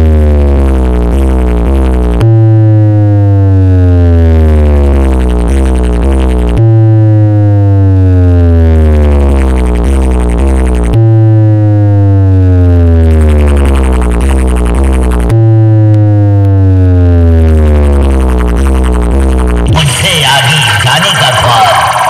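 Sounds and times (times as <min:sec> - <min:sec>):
heavy deep bass: 0:00.0 - 0:22.0
synthesized test tone gliding down: 0:05.7 - 0:22.0.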